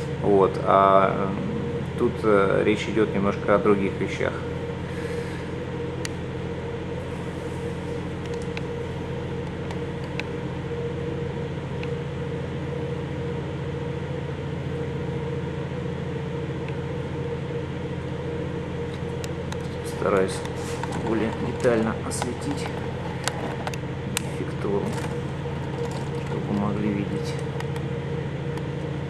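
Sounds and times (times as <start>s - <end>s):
machine hum: 0.0s - 29.0s.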